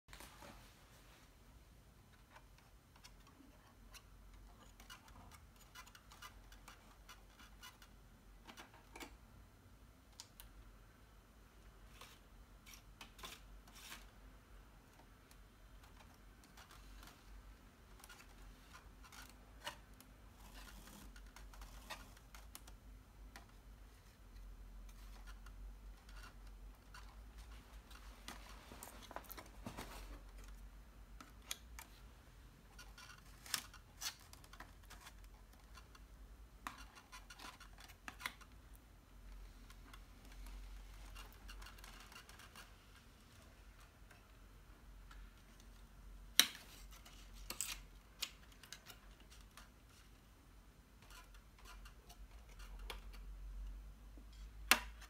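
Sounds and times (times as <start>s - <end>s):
paper rustling and scraping: 11.9s - 14.2s.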